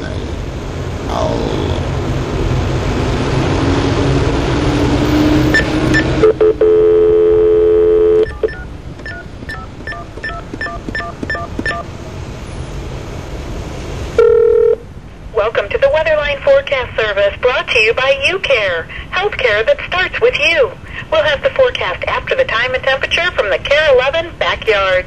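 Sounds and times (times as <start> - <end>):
telephone line hiss and hum: 5.5 - 11.9, 14.2 - 14.9
dial tone: 5.6 - 11.8, 14.2 - 14.8
touch-tone key beeps: 5.6 - 11.8.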